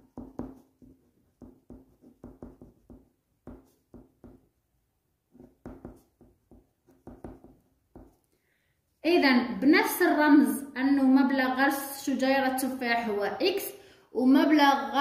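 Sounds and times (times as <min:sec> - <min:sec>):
pen scratching on paper: 0:00.1 - 0:04.4, 0:05.3 - 0:08.2.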